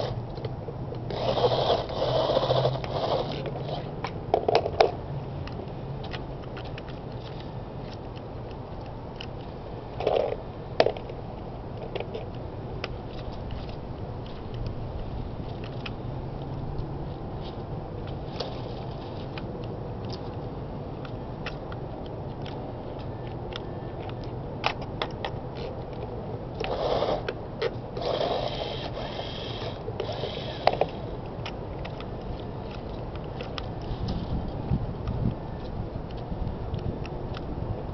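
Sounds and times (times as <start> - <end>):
small electric motors whirring: 1.0 - 3.9, 26.5 - 27.4, 28.0 - 31.1
small clicks of wheels on gravel: 15.4 - 37.9.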